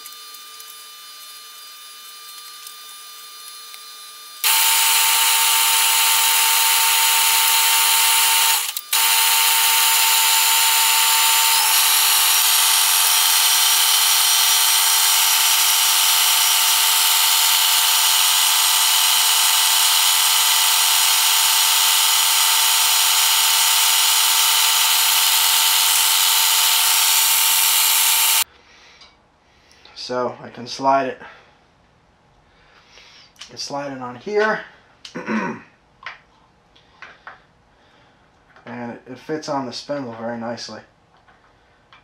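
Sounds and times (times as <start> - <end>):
metal lathe humming: 0.0 - 28.4
cutting tool hissing: 0.0 - 28.5.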